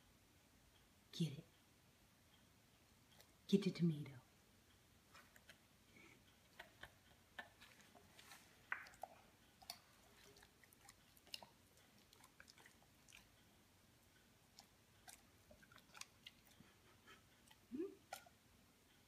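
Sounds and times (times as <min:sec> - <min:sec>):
dog chewing wetly: 0:05.1 - 0:18.4.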